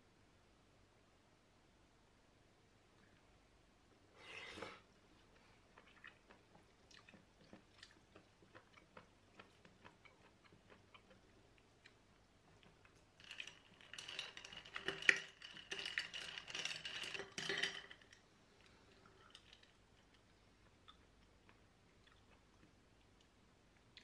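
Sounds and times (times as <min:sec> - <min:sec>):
eating noises: 0:05.4 - 0:13.0
utensils clicking against pot: 0:13.2 - 0:18.2.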